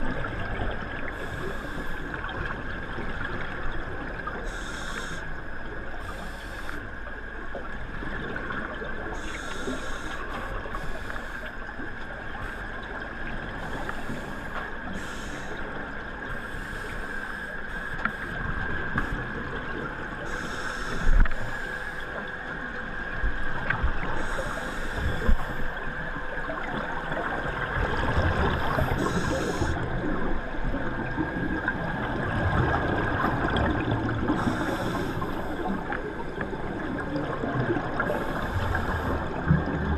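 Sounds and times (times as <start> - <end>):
scuba regulator breathing: 4.5 - 5.3, 6.0 - 6.8, 9.2 - 11.5, 13.6 - 18.4, 20.2 - 22.1, 24.2 - 25.7, 28.6 - 29.8, 34.3 - 35.7, 38.0 - 39.4
exhaled bubbles: 26.5 - 39.9.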